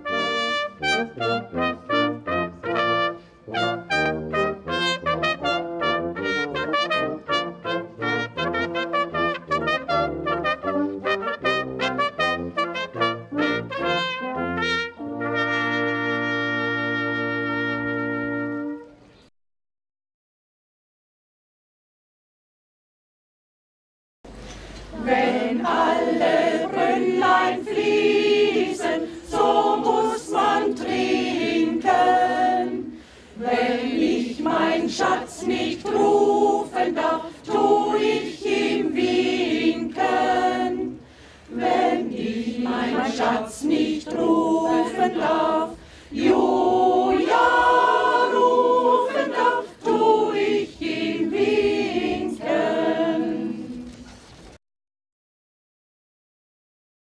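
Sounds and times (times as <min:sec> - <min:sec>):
mixed choir singing: 0:24.9 - 0:54.0.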